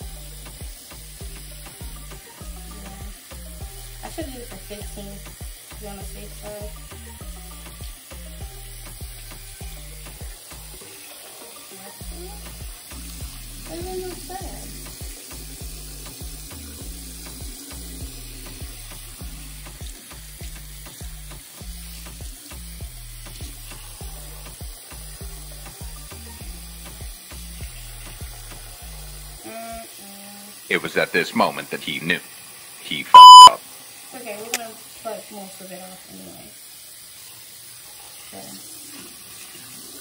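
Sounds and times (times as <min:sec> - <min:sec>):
background music with bass: 0:00.0 - 0:10.9, 0:12.0 - 0:29.4, 0:33.2 - 0:33.6
faucet running into sink: 0:00.0 - 0:30.7, 0:33.7 - 0:40.0.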